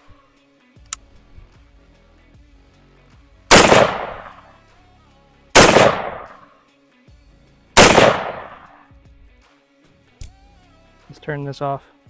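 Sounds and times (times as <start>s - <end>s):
rifle shots: 3.5s - 4.5s, 5.6s - 6.4s, 7.8s - 8.7s.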